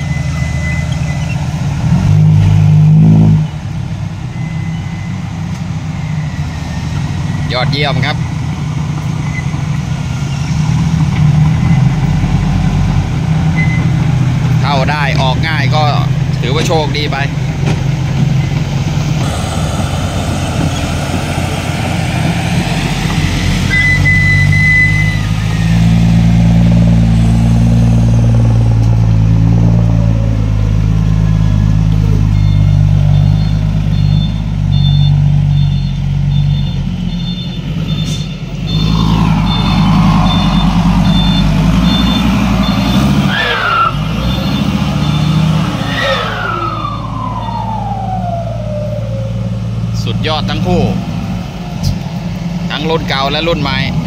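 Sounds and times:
diesel truck engine revving: 0:00.0 - 0:54.0
falling whistles: 0:19.2 - 0:26.1, 0:38.0 - 0:49.5
rapid high beeping: 0:32.4 - 0:43.4.

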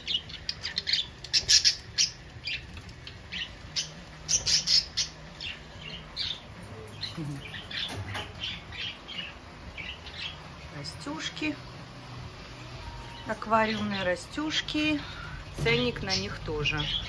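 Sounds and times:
parrots squawking: 0:00.0 - 0:10.6
low steady hum: 0:00.0 - 0:17.0.

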